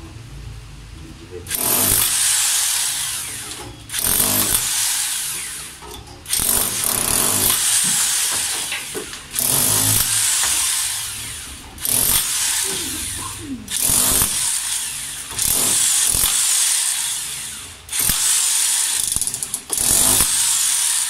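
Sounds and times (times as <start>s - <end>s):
jackhammer chiselling concrete: 1.5s - 21.0s.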